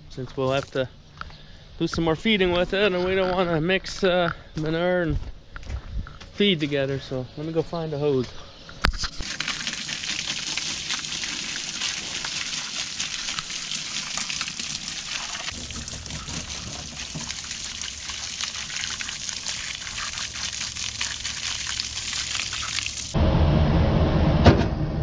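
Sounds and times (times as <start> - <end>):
hose water spraying on metal: 9.2 - 23.2.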